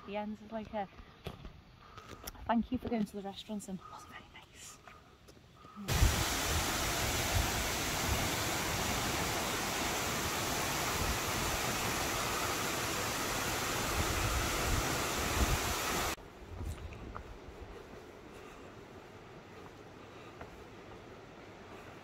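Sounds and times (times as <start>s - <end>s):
wind rumble on microphone: 5.9s - 9.0s, 13.5s - 17.9s
waterfall rushing: 5.9s - 16.2s.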